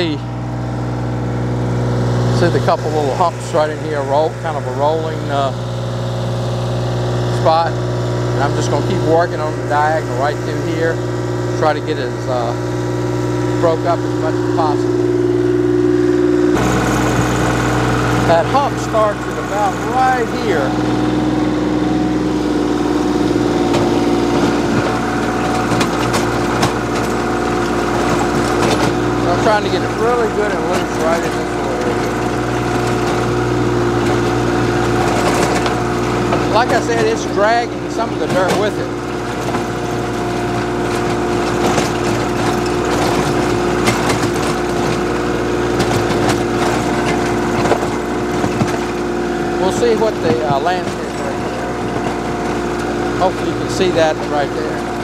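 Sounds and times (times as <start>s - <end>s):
rotary tiller churning soil: 0.0s - 55.0s
tractor diesel engine running: 0.0s - 55.0s
stones knocking in tiller: 23.2s - 55.0s.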